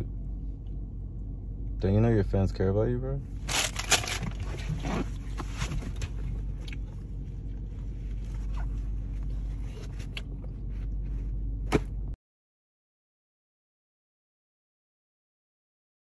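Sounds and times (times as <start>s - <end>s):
low hum inside car: 0.0s - 12.2s.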